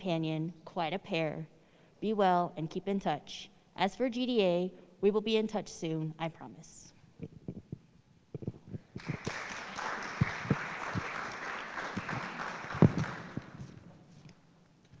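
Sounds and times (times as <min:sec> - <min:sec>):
audience applause: 0:09.0 - 0:13.8.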